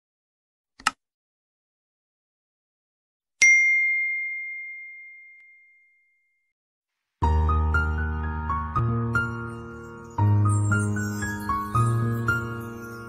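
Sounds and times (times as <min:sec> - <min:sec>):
mouse click: 0:00.8 - 0:01.0
notification bell ding: 0:03.4 - 0:06.4.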